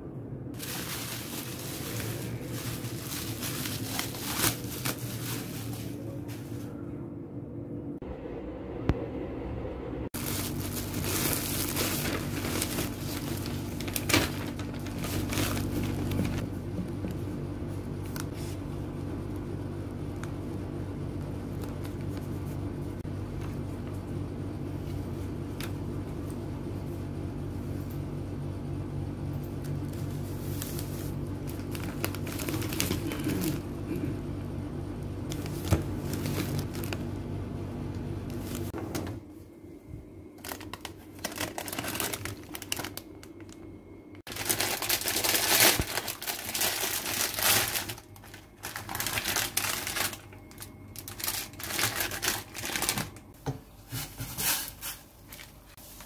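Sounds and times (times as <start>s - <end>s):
steady low hum: 0.0s - 56.0s
wrapping paper rustling: 0.5s - 6.8s, 10.2s - 16.5s, 21.2s - 22.7s, 29.6s - 34.0s, 35.3s - 37.2s, 38.3s - 38.8s, 40.4s - 43.6s, 44.3s - 56.0s.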